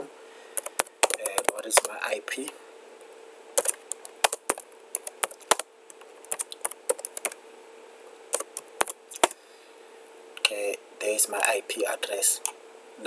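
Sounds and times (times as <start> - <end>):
faint steady hum: 0.0 - 13.0
keyboard typing clicks: 0.6 - 2.0, 3.6 - 7.4, 8.3 - 9.4.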